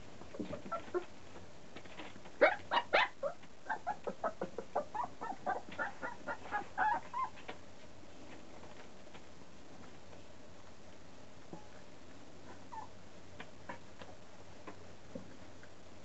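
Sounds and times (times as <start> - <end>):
puppy yipping and whimpering: 0.5 - 1.1, 2.4 - 7.5, 12.7 - 13.0.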